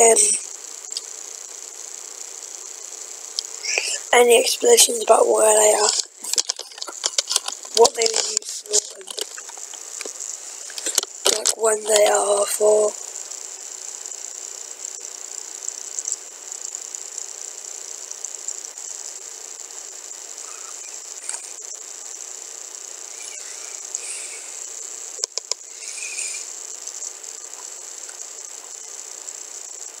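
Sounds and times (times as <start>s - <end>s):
high-pitched hiss: 0.0s - 30.0s
sharp clicks: 25.2s - 27.1s.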